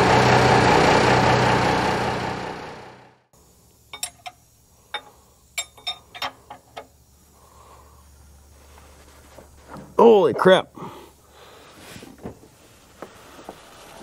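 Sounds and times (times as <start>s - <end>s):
diesel engine idling: 0.0s - 3.2s.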